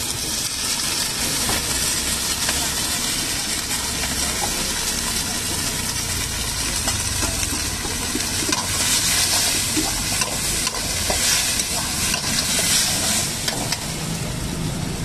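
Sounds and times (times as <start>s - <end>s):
vegetables sizzling in wok: 0.0s - 15.0s
metal ladle scraping pan: 7.8s - 14.0s.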